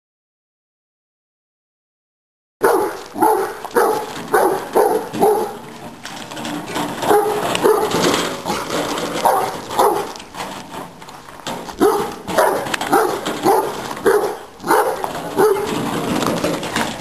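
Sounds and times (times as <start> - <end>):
dog barking rapidly: 2.6 - 5.6, 7.0 - 10.2, 11.8 - 15.8.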